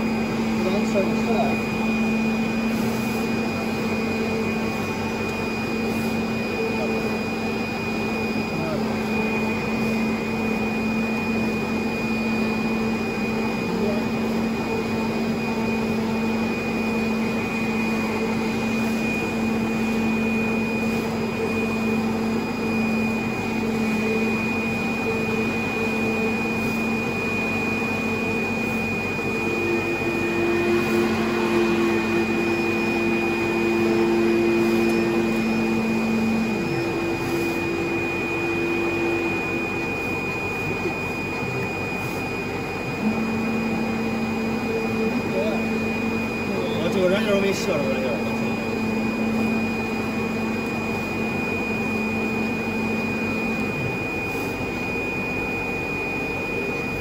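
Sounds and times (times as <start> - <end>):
vacuum blower whir: 0.0 - 57.0
higher hum: 42.9 - 45.3.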